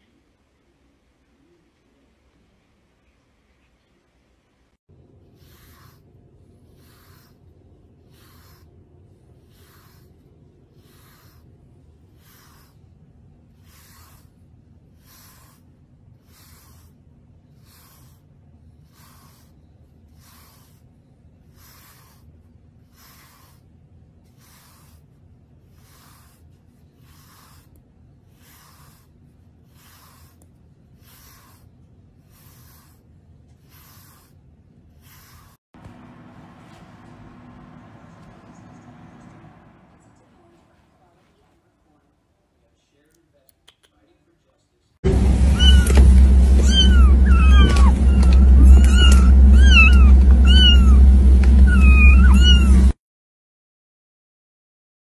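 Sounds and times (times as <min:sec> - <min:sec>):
brush swishing through cat fur: 0:05.3 - 0:20.9, 0:21.5 - 0:23.7, 0:24.3 - 0:27.8, 0:28.4 - 0:39.5, 0:45.1 - 0:53.0
steady low rumble: 0:35.8 - 0:41.7, 0:45.0 - 0:53.0.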